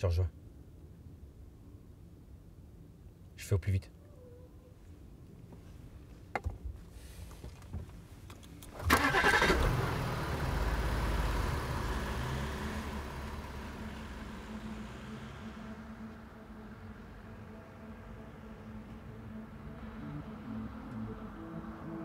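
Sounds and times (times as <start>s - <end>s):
car engine starting and running: 8.6s - 22.0s.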